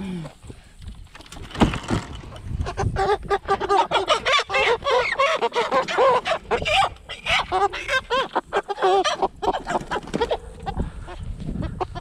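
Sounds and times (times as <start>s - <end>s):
chickens squawking: 2.5s - 12.0s.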